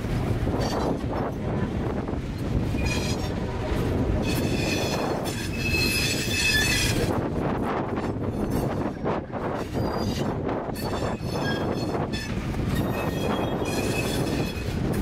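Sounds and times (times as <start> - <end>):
freight train rumbling past: 0.0 - 15.0
steel wheels squealing: 0.5 - 1.4, 2.7 - 3.5, 4.2 - 7.2, 7.9 - 15.0.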